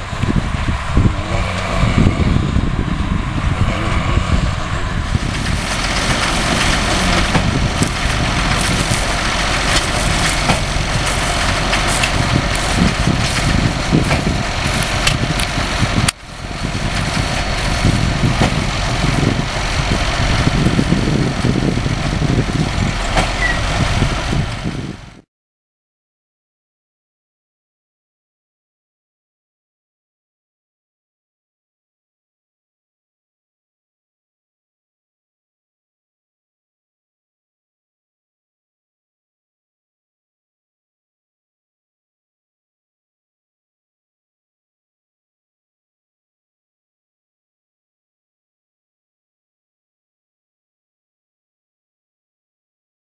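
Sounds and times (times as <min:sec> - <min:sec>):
tractor and baler machinery: 0:00.0 - 0:25.2
irregular machinery knocks: 0:05.2 - 0:16.2, 0:18.2 - 0:18.7, 0:23.0 - 0:23.8.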